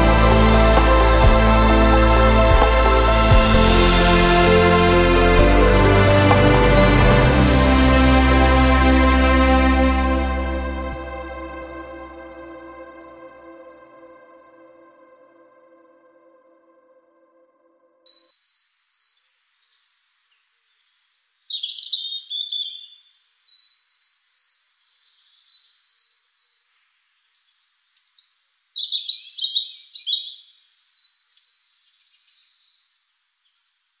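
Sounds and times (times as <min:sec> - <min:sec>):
songbirds chirping and trilling: 0:18.1 - 0:34.0.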